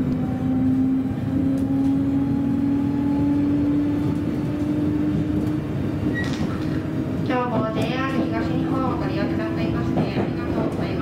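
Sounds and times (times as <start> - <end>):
train motor hum rising in pitch: 0.0 - 6.1
train running rumble: 0.0 - 11.0.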